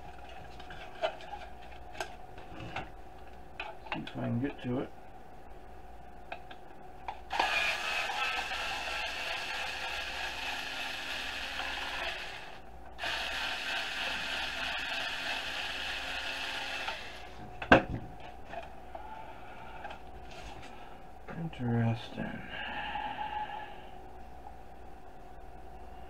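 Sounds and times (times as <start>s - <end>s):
cordless screwdriver running: 7.3s - 17.3s.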